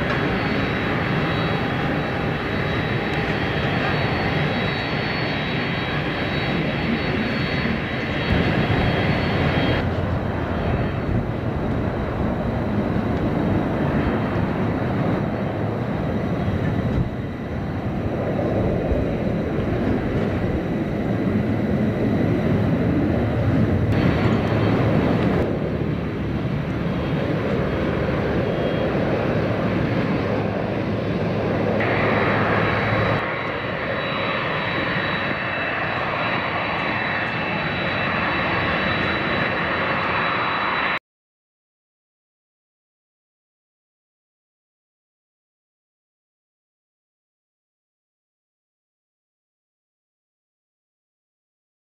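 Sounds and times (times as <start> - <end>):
jet engines with high whine: 0.0 - 41.0.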